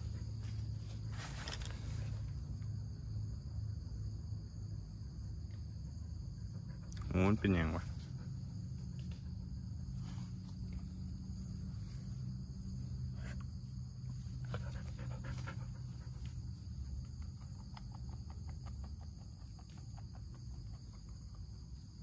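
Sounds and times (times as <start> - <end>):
dog panting: 12.9 - 21.7.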